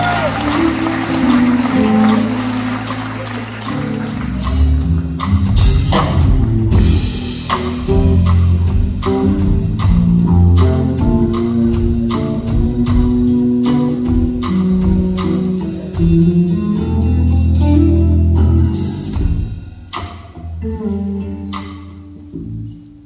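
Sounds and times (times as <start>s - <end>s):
drum kit beat: 0.0s - 22.2s
electric bass guitars playing: 0.0s - 23.0s.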